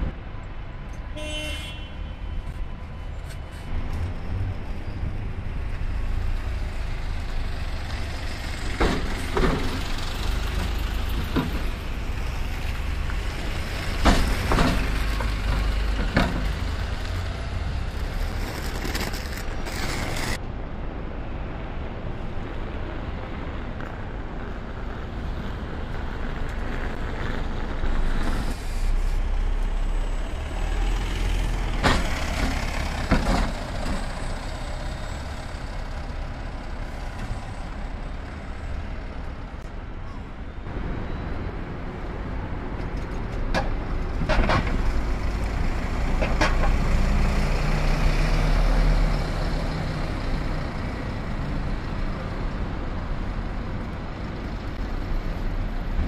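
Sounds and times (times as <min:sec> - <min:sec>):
bus engine rumble: 0:02.1 - 0:56.0.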